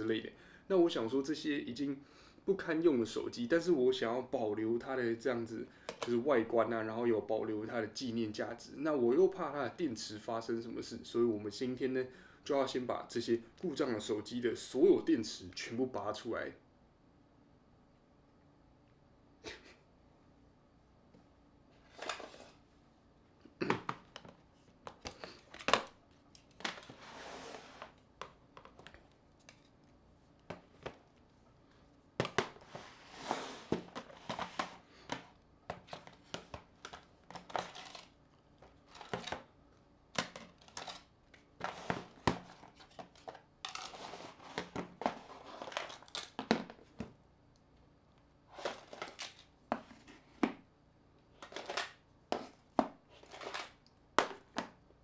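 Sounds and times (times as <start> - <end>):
plastic rustling and crinkling: 35.7 - 39.4.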